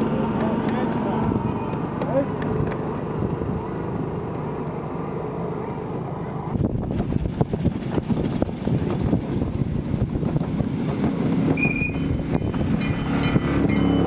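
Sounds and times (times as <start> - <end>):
high-pitched squeal: 11.6 - 14.0.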